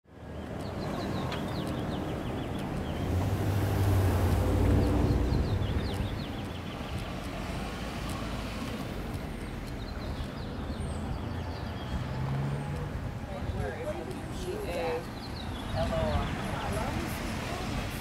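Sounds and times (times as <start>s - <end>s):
steady traffic noise: 0.0s - 18.0s
car passing: 0.2s - 18.0s.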